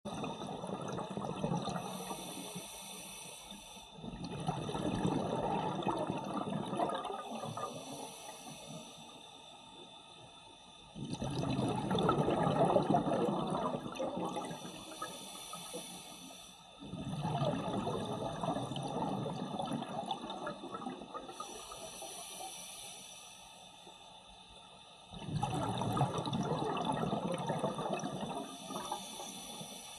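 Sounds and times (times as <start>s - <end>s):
diver exhaling bubbles underwater: 0.1s - 2.4s, 4.0s - 8.7s, 11.0s - 15.2s, 16.8s - 22.1s, 25.1s - 29.6s.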